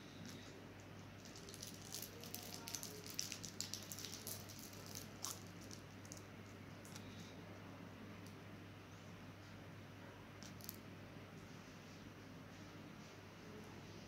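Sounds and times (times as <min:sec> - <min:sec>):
steady low hum: 0:00.0 - 0:14.0
plastic cone crackling: 0:00.2 - 0:07.2.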